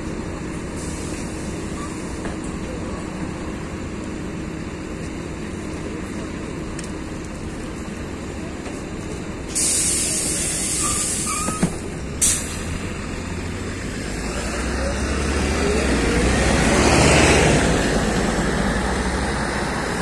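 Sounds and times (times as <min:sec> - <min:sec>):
bus low rumble: 0:00.0 - 0:20.0
compressed air hiss: 0:09.5 - 0:11.6, 0:12.2 - 0:12.7.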